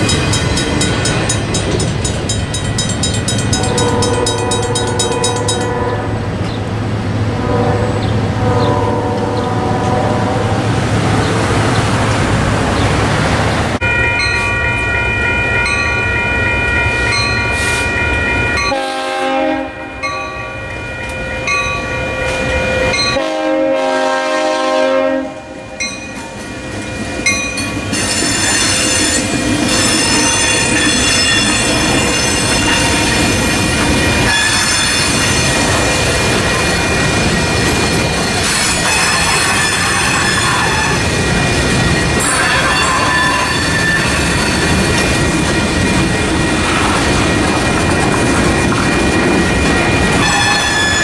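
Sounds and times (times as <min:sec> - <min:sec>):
crossing warning bells ringing: 0:00.0 - 0:12.9, 0:13.7 - 0:51.0
freight train rumble: 0:00.0 - 0:51.0
locomotive horn blasts: 0:03.6 - 0:06.2, 0:07.3 - 0:10.6, 0:18.6 - 0:25.7, 0:50.2 - 0:51.0
train wheels squealing: 0:25.8 - 0:45.3, 0:49.2 - 0:51.0.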